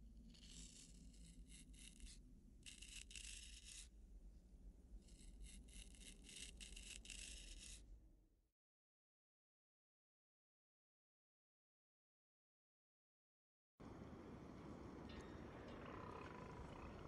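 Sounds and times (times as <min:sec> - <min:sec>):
straight razor shaving stubble: 0:00.4 - 0:03.8, 0:05.1 - 0:07.8.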